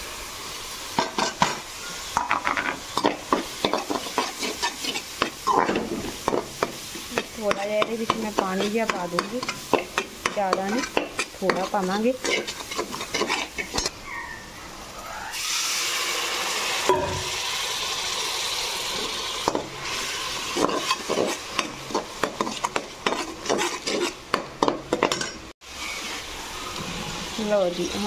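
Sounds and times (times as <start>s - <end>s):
pan sizzling loudly: 0.0s - 28.0s
spoon scraping metal pan: 1.0s - 14.0s, 18.9s - 26.2s.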